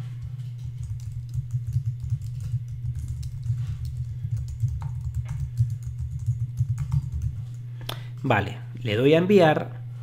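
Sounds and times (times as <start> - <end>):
steady low hum: 0.0 - 10.0
typing on computer keyboard: 0.6 - 7.6.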